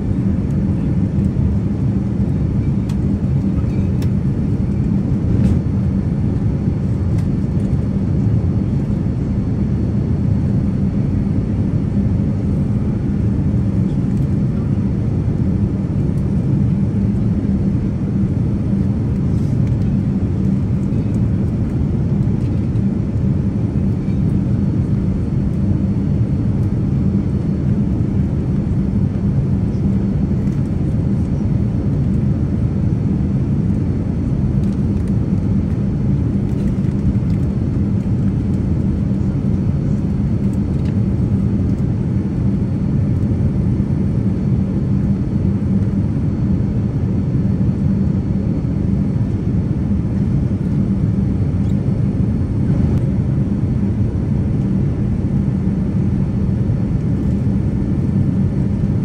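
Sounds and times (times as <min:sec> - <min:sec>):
airliner cabin rumble: 0:00.0 - 0:59.0
faint steady hum: 0:00.0 - 0:59.0.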